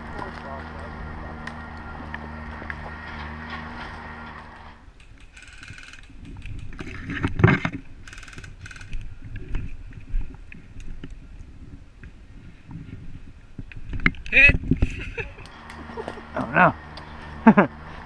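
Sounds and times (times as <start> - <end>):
footsteps on leaf litter: 0.0 - 4.6
rapid ticking: 4.9 - 6.7, 8.1 - 9.0.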